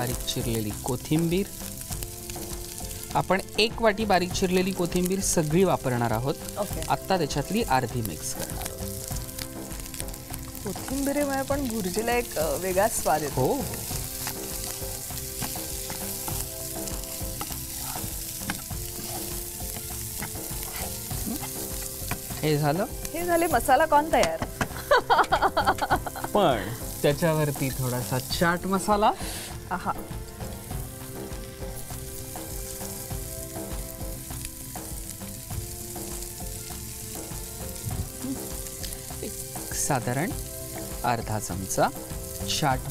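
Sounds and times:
food sizzling in a frying pan: 0.0s - 42.9s
spatula scraping a pan: 14.0s - 22.4s.

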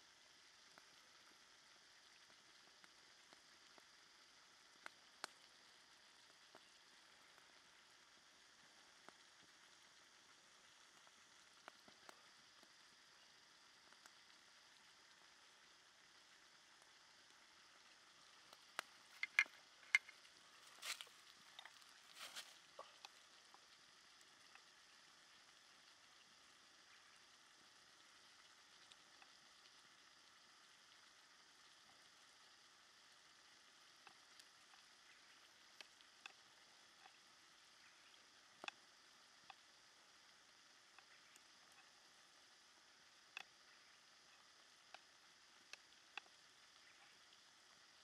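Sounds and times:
broth simmering in a pan: 0.0s - 48.0s
soft clicks and pops: 4.7s - 5.6s, 6.2s - 7.6s, 10.9s - 12.9s, 13.8s - 14.9s, 18.4s - 24.7s
tiny pops: 18.5s - 21.9s.

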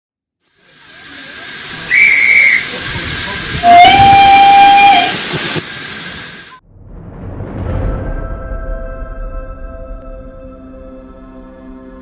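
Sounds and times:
steam locomotive hissing: 0.4s - 6.6s
steam whistle: 1.7s - 5.7s.

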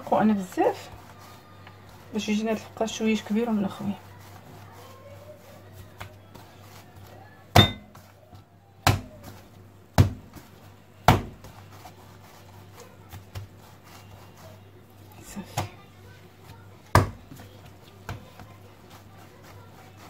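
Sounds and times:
hands rolling dough: 0.0s - 20.0s
dough thudding on stone counter: 7.4s - 11.9s, 13.0s - 13.8s, 15.2s - 15.8s, 16.4s - 20.0s.

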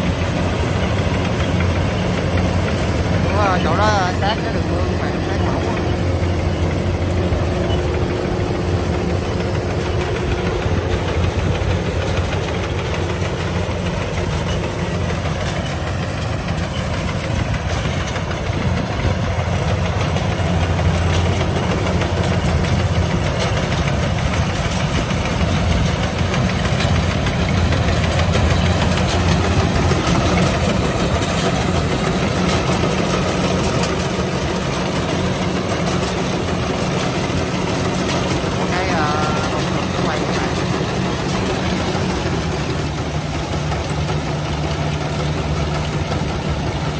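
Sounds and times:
combine harvester diesel engine: 0.0s - 46.9s.

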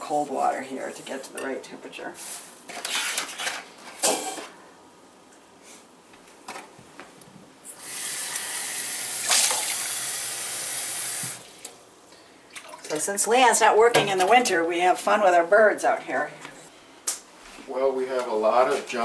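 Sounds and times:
kitchen items knocking and clinking: 2.7s - 4.6s.

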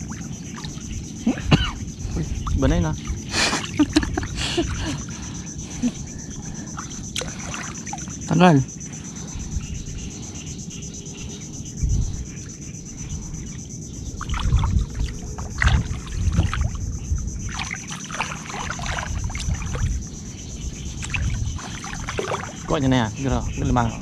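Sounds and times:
water sloshing and splashing: 0.0s - 10.2s, 12.2s - 23.2s.

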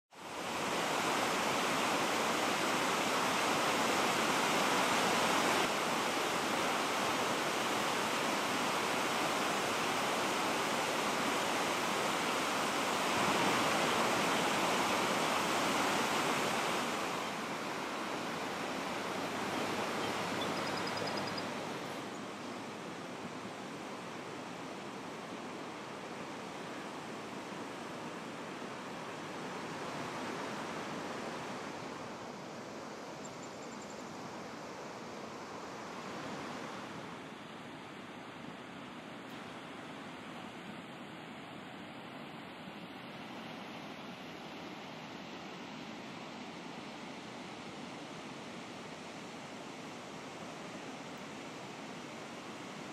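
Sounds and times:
water rushing over spillway: 0.2s - 32.5s.

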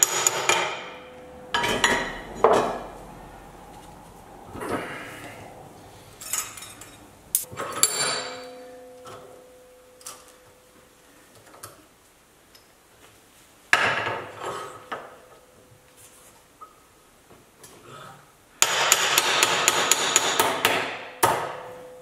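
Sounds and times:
metal ringing: 0.0s - 3.6s, 6.2s - 10.8s.

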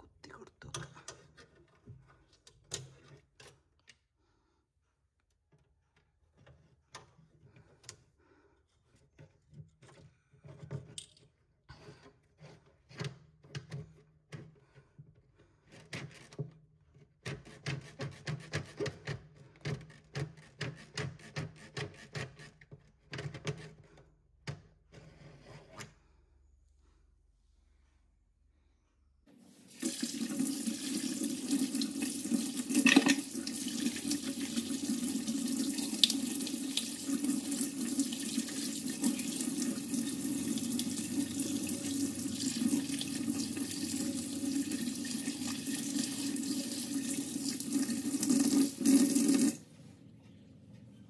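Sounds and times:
stick scraping plastic drain hole: 15.6s - 25.9s.

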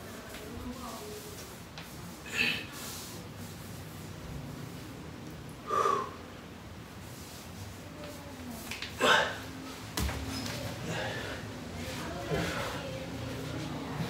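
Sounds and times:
man breathing hard: 5.6s - 6.3s
forceful exhale: 5.7s - 6.2s.

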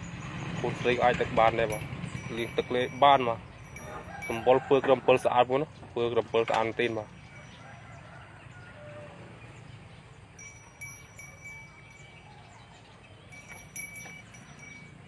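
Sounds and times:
cow bell ringing: 0.8s - 5.6s, 10.3s - 15.0s.

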